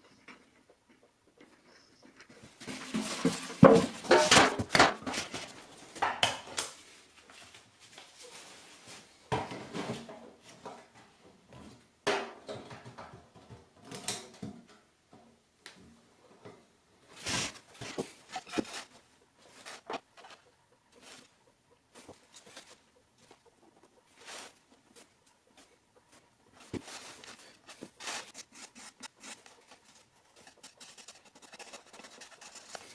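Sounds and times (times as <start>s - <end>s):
knocks and clatters of handling: 0.0s - 8.4s, 9.3s - 16.6s, 17.2s - 32.9s
rustling: 17.0s - 32.9s.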